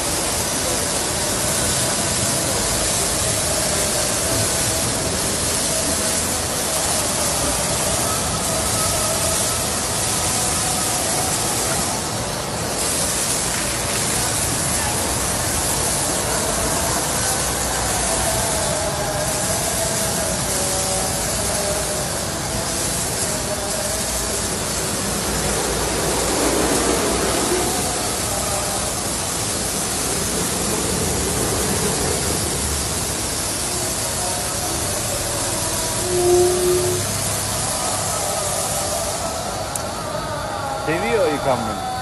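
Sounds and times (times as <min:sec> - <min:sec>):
car wash spraying and brushing: 0:00.0 - 0:39.9.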